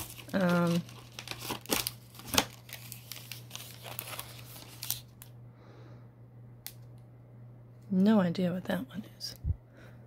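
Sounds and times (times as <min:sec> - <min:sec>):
plastic packets crinkling: 0:00.0 - 0:05.3.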